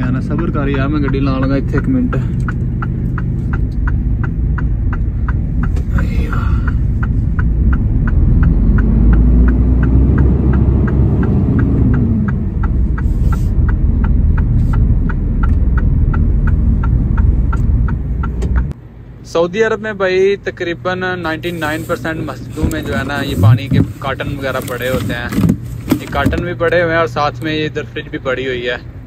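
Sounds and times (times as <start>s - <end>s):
indicator relay ticking: 0.0s - 18.8s
truck diesel engine running: 0.0s - 18.8s.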